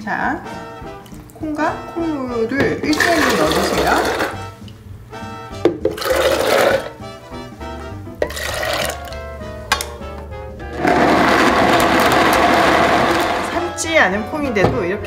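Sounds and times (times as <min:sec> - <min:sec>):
background music: 0:00.0 - 0:15.0
blender grinding beans: 0:02.9 - 0:04.4, 0:06.0 - 0:07.0, 0:08.2 - 0:09.1, 0:10.7 - 0:13.7
beans and water pouring: 0:02.9 - 0:04.5, 0:05.9 - 0:07.0, 0:08.2 - 0:09.2, 0:10.8 - 0:13.6.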